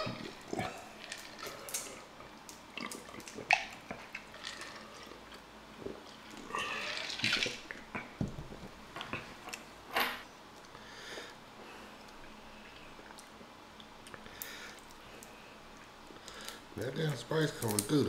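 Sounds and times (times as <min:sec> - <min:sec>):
wet eating sounds: 0:00.0 - 0:08.2.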